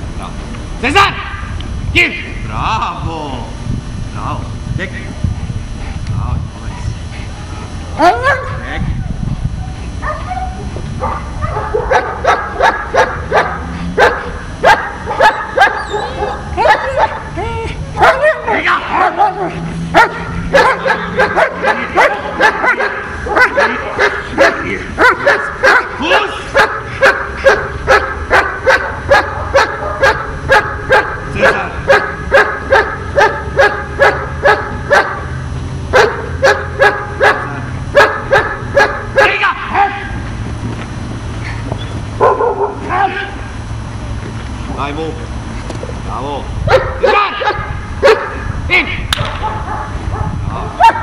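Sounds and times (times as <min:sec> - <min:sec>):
dog barking sharply: 0:11.1 - 0:17.2, 0:18.0 - 0:39.4, 0:42.2 - 0:43.0, 0:46.7 - 0:48.4, 0:49.4 - 0:51.0.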